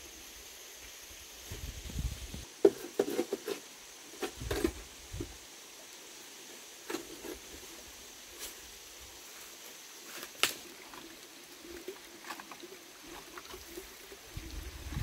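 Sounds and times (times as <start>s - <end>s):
bamboo poles knocking and rustling: 2.5s - 5.4s, 10.1s - 11.1s.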